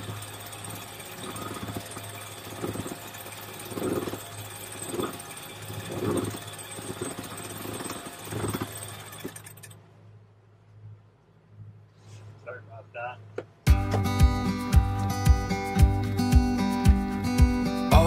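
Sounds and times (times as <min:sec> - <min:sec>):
winch grinding: 0:00.0 - 0:09.8.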